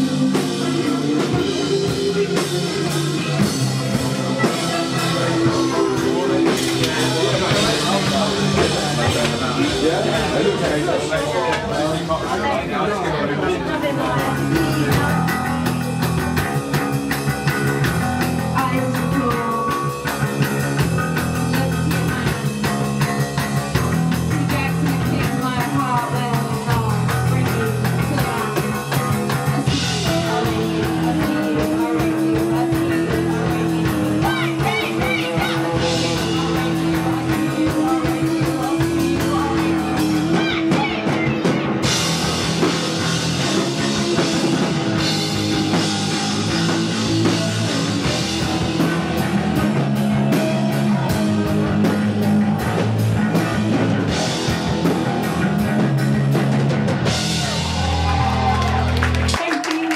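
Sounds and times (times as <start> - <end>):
bass guitar: 0.0 - 59.9
drum kit: 0.0 - 59.9
electric guitar: 0.0 - 59.9
woman singing: 13.8 - 15.6, 18.5 - 20.2, 24.3 - 42.0.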